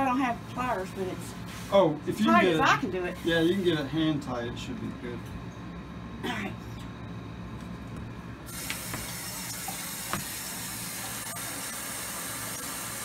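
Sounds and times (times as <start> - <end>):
faucet turning on: 8.5 - 13.0
water running into sink: 8.5 - 13.0.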